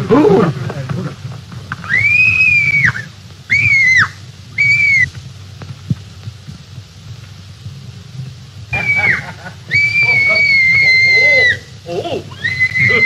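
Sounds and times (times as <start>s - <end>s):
old film soundtrack hiss: 0.0s - 13.0s
shrill high-pitched cries: 1.8s - 5.1s, 8.8s - 13.0s.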